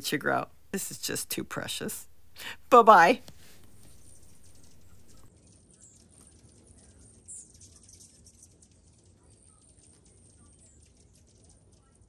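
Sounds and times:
faint steady hiss: 0:00.0 - 0:05.3
high bird chirp: 0:03.7 - 0:06.0.

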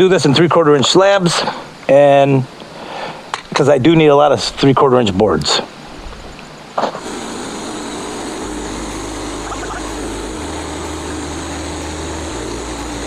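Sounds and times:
band saw cutting log: 0:06.8 - 0:13.0
band sawmill engine running: 0:07.0 - 0:13.0.

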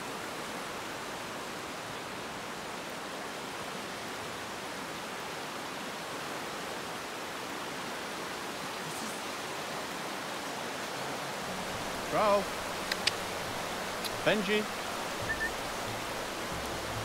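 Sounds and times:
fast river rushing: 0:00.0 - 0:17.0.

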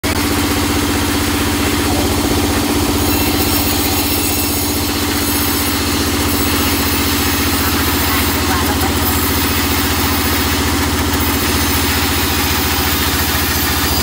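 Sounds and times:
band saw droning: 0:00.0 - 0:14.0.

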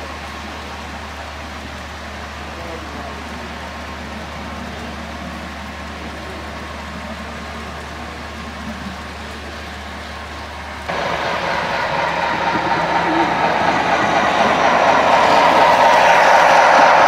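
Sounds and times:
model train rolling: 0:02.3 - 0:17.0
low hum: 0:10.9 - 0:17.0.

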